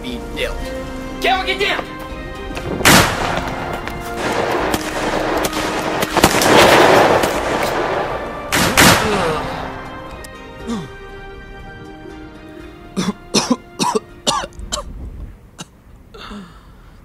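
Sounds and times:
background music: 0.0 - 15.6
gunshot sound effects: 2.8 - 9.4.

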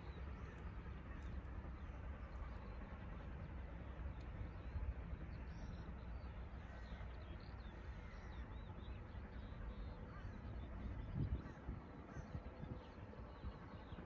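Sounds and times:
wind rumble on microphone: 10.2 - 14.0.

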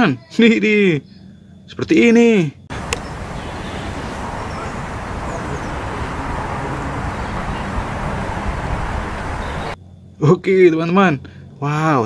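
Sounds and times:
rumbly outdoor background noise: 2.7 - 11.7.

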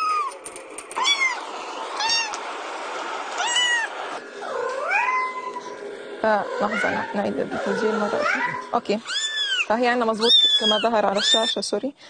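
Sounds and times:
kitten meowing: 8.2 - 11.6.

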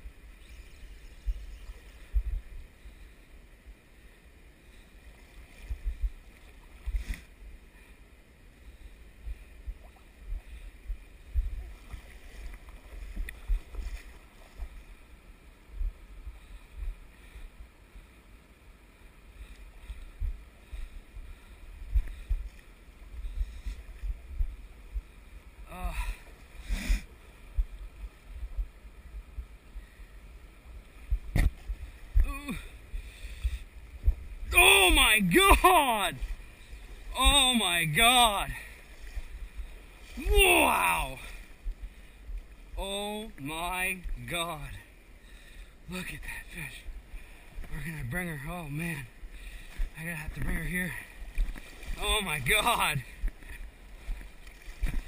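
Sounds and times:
wind buffeting microphone: 1.1 - 2.7, 9.2 - 14.9
water sloshing and lapping: 4.8 - 8.0, 9.6 - 15.2, 30.6 - 45.7, 49.2 - 55.0.

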